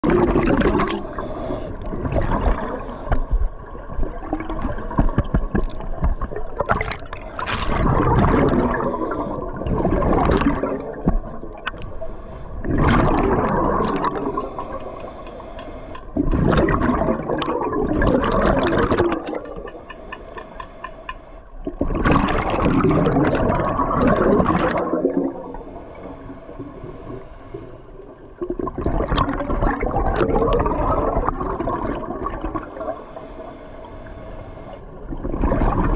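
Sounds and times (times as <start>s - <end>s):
regulator bubbles gurgling: 0.0s - 19.9s, 21.4s - 35.9s
diver breathing through regulator: 1.0s - 1.9s, 14.2s - 16.2s, 19.6s - 21.5s, 25.4s - 28.1s, 32.6s - 34.9s.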